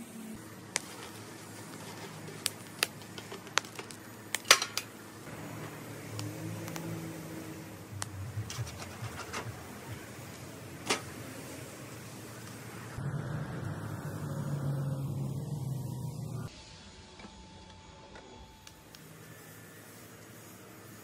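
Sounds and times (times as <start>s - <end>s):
coals shifted in steel fire pit: 0.4s - 13.0s
low steady rumble: 5.0s - 16.6s.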